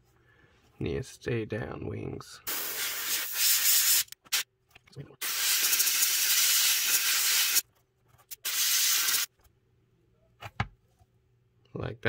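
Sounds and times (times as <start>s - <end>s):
airbrush spraying hiss: 2.5s - 4.4s, 5.2s - 7.6s, 8.4s - 9.3s.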